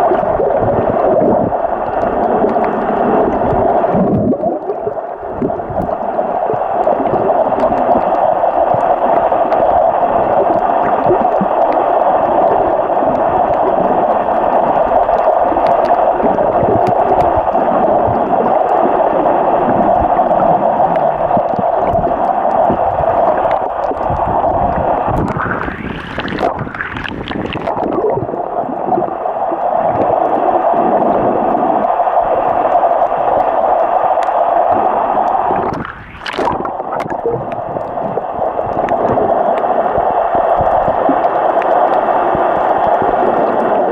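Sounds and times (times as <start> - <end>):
muffled underwater rushing: 0.0 - 43.9
water sloshing: 24.9 - 28.5, 35.5 - 39.6.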